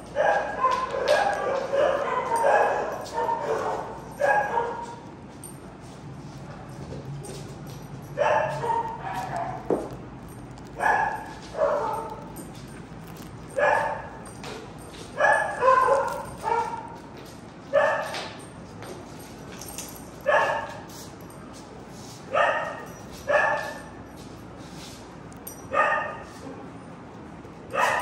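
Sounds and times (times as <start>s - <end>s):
dog barking: 0.1s - 5.0s, 8.2s - 10.0s, 10.8s - 12.4s, 13.5s - 14.3s, 15.2s - 17.0s, 17.7s - 18.2s, 20.2s - 20.8s, 22.3s - 24.0s, 25.7s - 26.4s, 27.7s - 28.0s.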